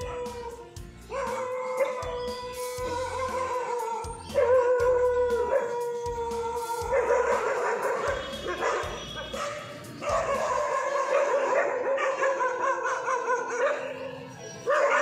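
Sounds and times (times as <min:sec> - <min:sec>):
background music: 0:00.0 - 0:15.0
dogs barking: 0:00.0 - 0:15.0.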